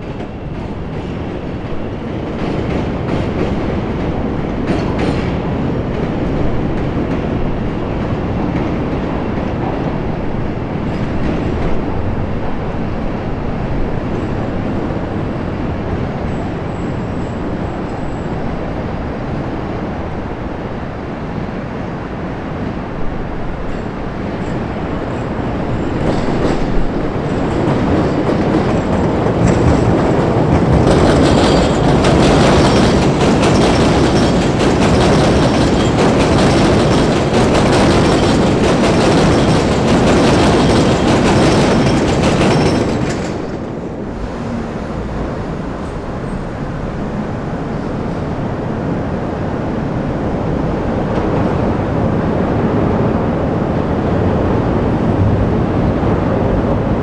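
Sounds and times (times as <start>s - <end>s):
train clattering over rail joints: 0.0s - 12.7s, 23.6s - 49.0s
train rumble: 0.0s - 57.0s.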